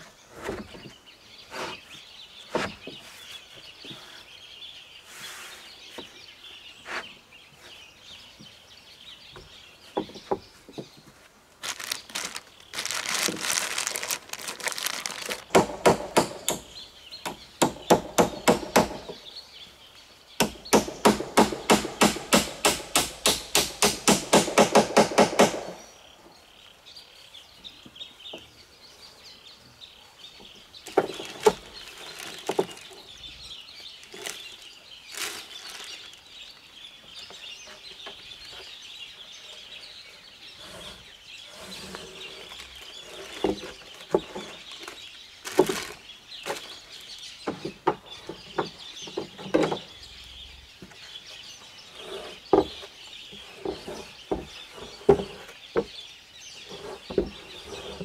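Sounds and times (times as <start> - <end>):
birds chirping: 0.0 - 58.0
corrugated roofing sheets rattling: 11.6 - 16.6
rapid hammering: 20.4 - 25.8.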